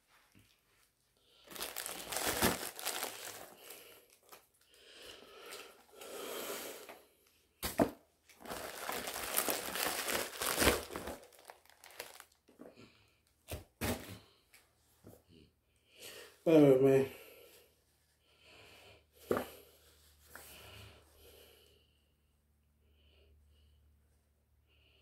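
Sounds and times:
plastic bag crinkling and tearing: 1.4s - 4.7s, 8.3s - 12.5s.

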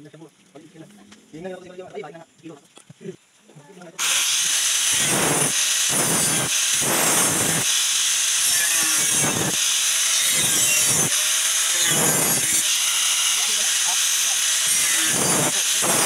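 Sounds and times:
angle grinder cutting steel: 4.0s - 16.0s.

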